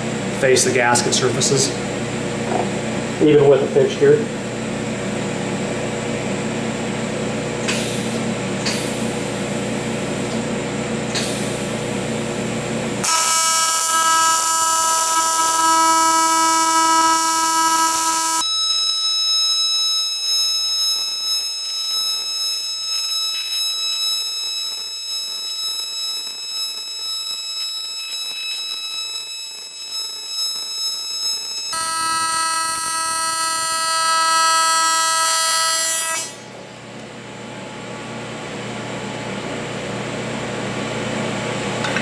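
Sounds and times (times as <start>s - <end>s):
welding arc buzzing: 11.1s - 36.5s.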